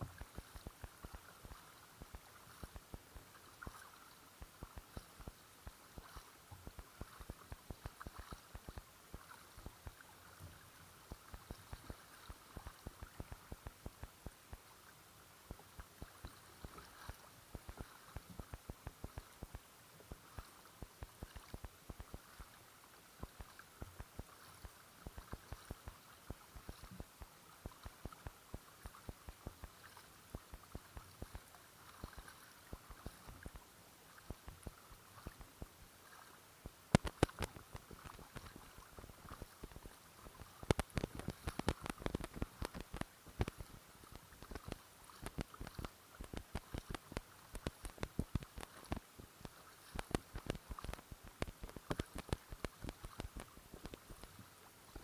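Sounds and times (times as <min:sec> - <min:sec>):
small irregular ticks and clicks: 0:00.0 - 0:55.0
water splashing against hull: 0:00.0 - 0:55.0.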